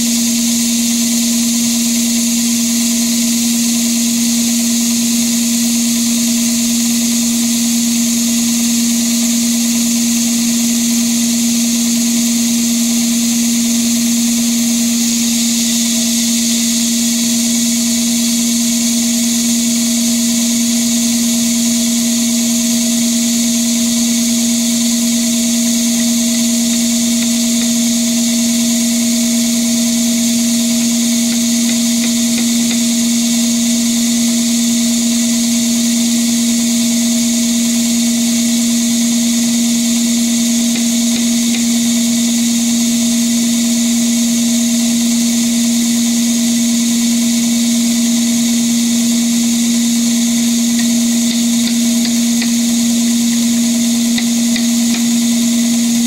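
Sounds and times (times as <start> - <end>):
band saw cutting log: 23.6 - 35.4, 39.3 - 42.8, 49.0 - 56.0.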